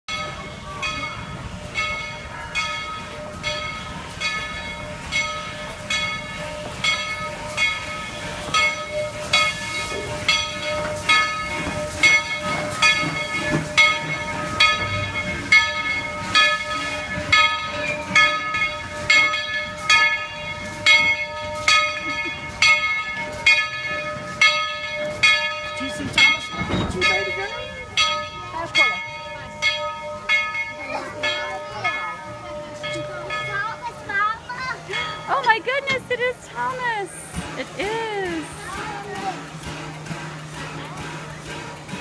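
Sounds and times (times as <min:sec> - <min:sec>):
locomotive bell ringing: 0:00.1 - 0:42.0.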